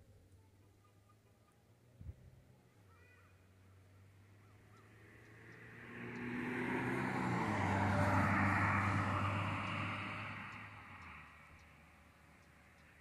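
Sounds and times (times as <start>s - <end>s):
vehicle passing by: 3.4s - 13.0s.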